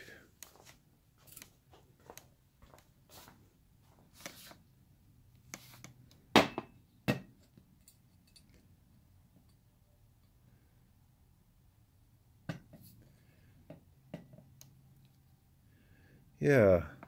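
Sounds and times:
soft handling clicks and rustles: 0.3s - 4.6s.

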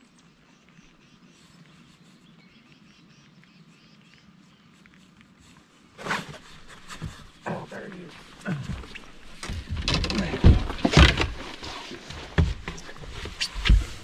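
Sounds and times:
distant birds chirping: 6.1s - 14.0s.

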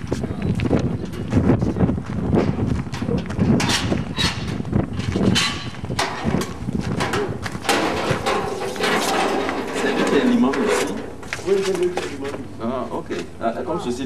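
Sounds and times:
rumble on microphone: 0.0s - 8.9s
shuffling footsteps: 0.0s - 13.4s.

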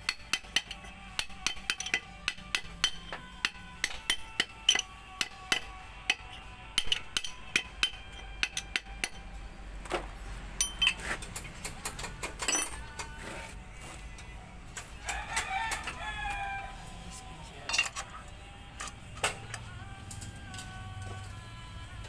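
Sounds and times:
spanner clinking on metal nut: 0.1s - 3.1s, 10.6s - 13.1s, 17.7s - 18.1s
rooster crowing: 15.0s - 17.1s.

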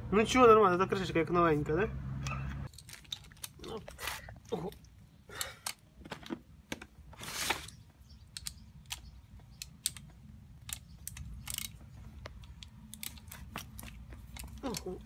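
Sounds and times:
metal tools clicking and tapping: 8.3s - 15.0s.

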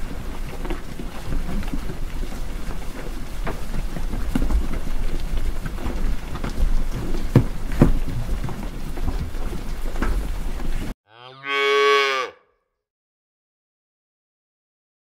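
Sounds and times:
cow mooing: 11.1s - 12.5s.

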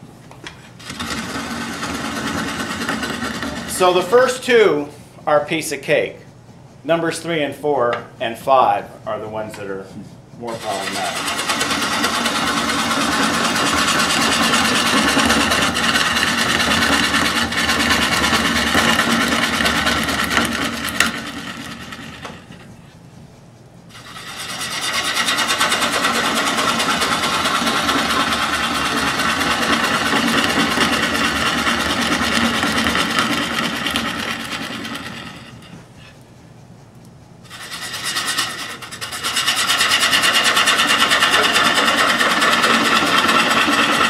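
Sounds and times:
gouge scraping spinning wood: 0.6s - 4.9s, 8.2s - 44.0s
lathe running: 0.8s - 4.4s, 10.4s - 22.9s, 23.9s - 36.0s, 37.5s - 44.0s.

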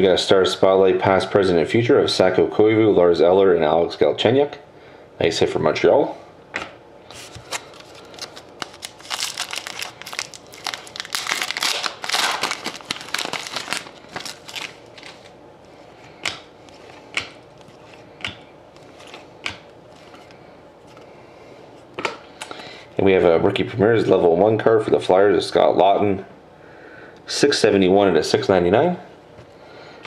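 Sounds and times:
foil wrapper crinkling and tearing: 7.1s - 15.4s.

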